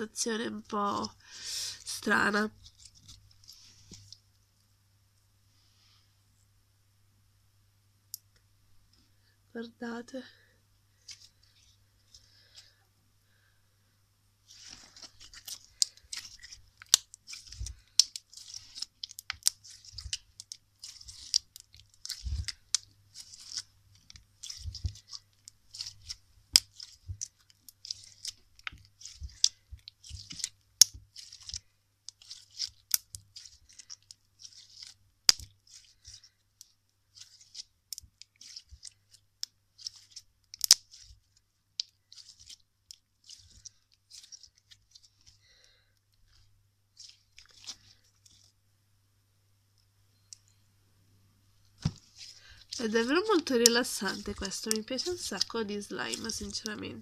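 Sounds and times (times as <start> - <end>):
slime popping and clicking: 40.5 - 41.1.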